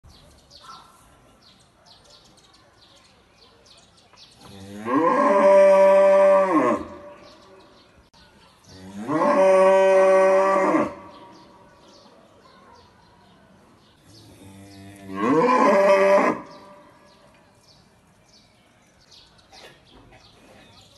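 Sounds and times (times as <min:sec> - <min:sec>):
cow mooing: 0:08.8 - 0:11.1, 0:14.5 - 0:16.7.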